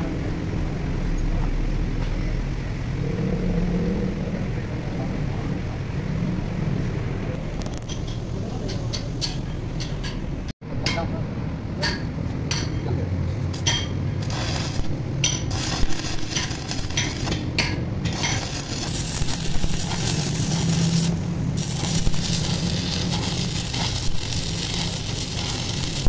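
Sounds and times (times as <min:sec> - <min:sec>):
metal tools clinking and scraping: 0:13.6 - 0:18.9
even rushing noise: 0:14.1 - 0:26.0.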